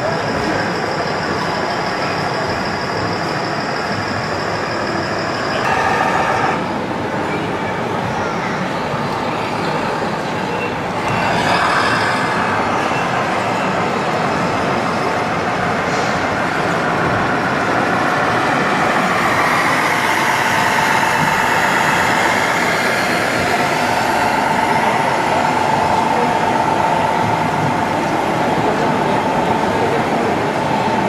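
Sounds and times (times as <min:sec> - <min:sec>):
crowd chatter: 0:00.0 - 0:31.0
model trucks running: 0:05.5 - 0:06.7.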